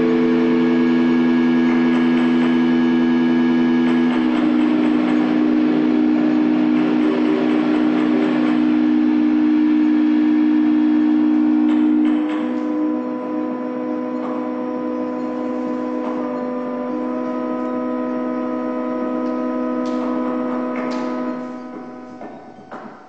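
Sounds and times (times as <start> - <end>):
electronic drone chord: 0.0 - 23.0.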